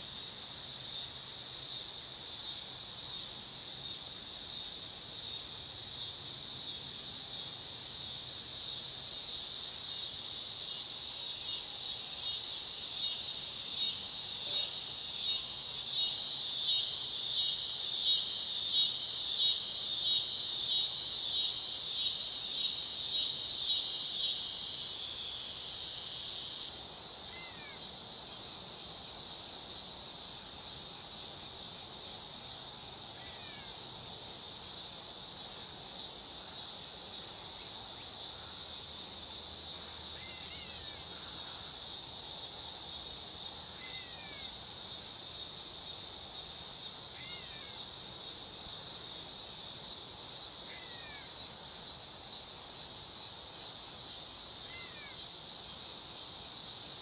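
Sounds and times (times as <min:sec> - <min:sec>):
cicada buzzing drone: 0:00.0 - 0:57.0.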